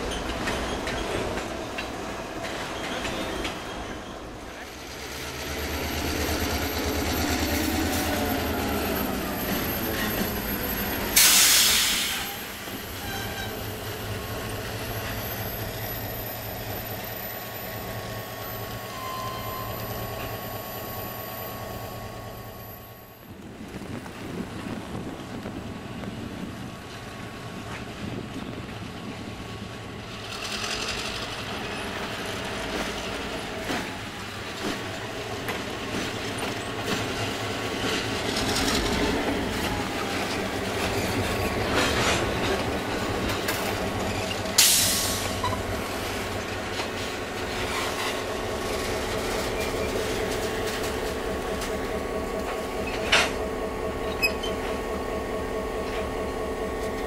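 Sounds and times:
metallic clank or squeal: 0:00.0 - 0:04.6, 0:10.9 - 0:13.8, 0:18.6 - 0:21.7, 0:43.3 - 0:45.7, 0:54.1 - 0:54.8
diesel locomotive engine running: 0:00.0 - 0:57.0
wheels rolling on rails: 0:23.3 - 0:44.6.

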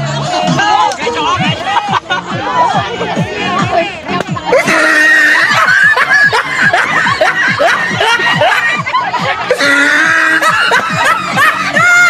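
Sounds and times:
background music: 0:00.0 - 0:12.0
women laughing and shrieking: 0:01.4 - 0:03.2, 0:04.4 - 0:12.0.

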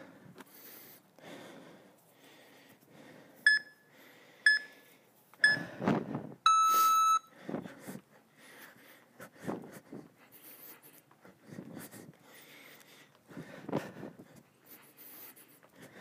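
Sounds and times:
long low beep: 0:03.5 - 0:03.8, 0:04.5 - 0:04.7, 0:05.4 - 0:05.6, 0:06.5 - 0:07.3
short timer beeps: 0:03.5 - 0:03.8, 0:04.5 - 0:04.7, 0:05.4 - 0:05.6, 0:06.5 - 0:07.3.

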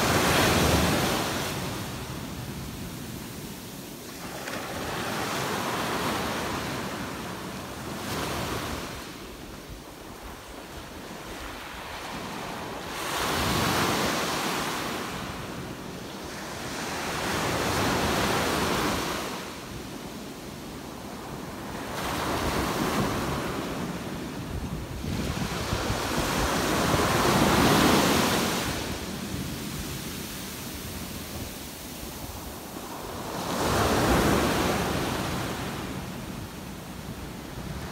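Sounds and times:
ocean waves breaking on beach: 0:00.0 - 0:37.9.

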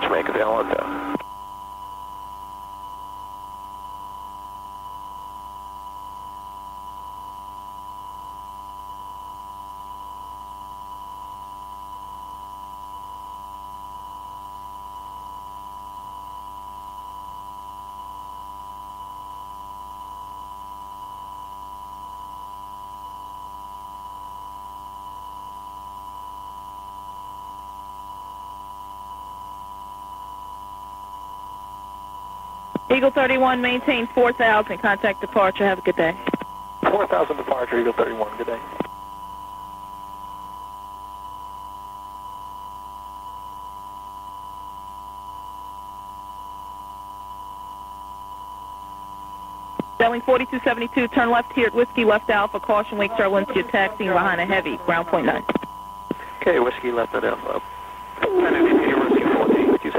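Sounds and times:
low hum: 0:49.7 - 0:59.9
steady electronic tone: 0:49.8 - 0:59.9.

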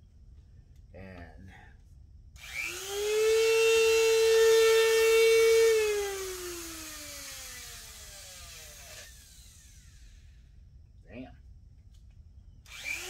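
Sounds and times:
rotary tool whining and spinning down: 0:02.4 - 0:10.4, 0:12.6 - 0:13.0.

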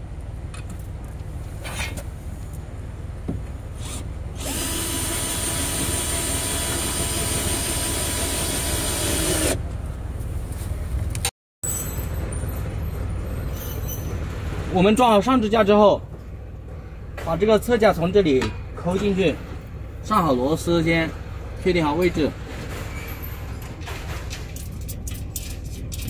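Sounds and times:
cordless drill driving screw: 0:03.8 - 0:09.6.

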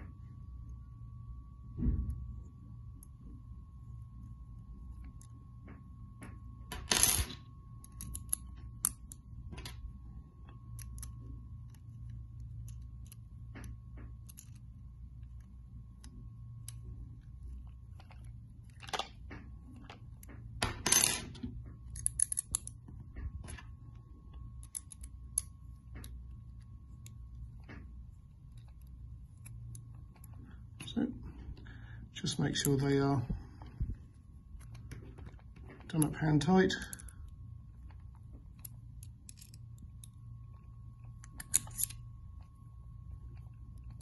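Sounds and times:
faint steady hum: 0:00.0 - 0:44.0.

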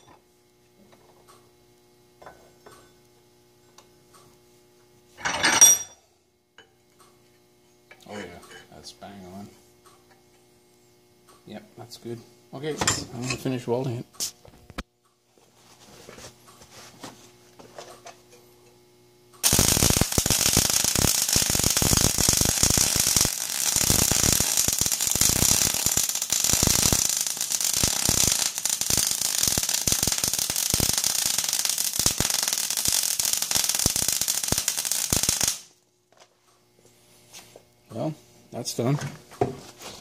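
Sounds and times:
welding arc crackling and sizzling: 0:00.0 - 0:05.2, 0:18.8 - 0:35.9.

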